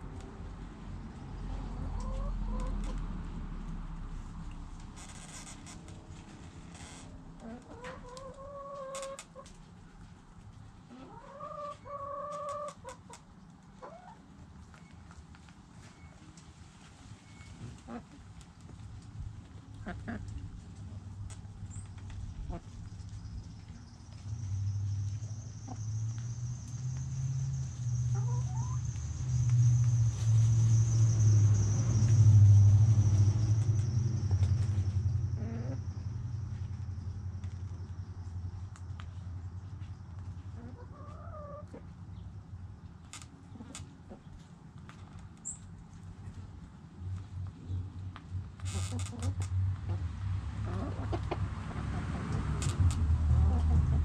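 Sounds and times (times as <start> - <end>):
hens clucking: 1.8 - 3.0, 7.4 - 9.5, 10.9 - 13.2, 19.7 - 20.5, 40.5 - 41.9, 49.2 - 52.4
chickens scratching in dry dirt: 7.4 - 41.9
chicken calling: 10.9 - 13.0, 28.1 - 28.8.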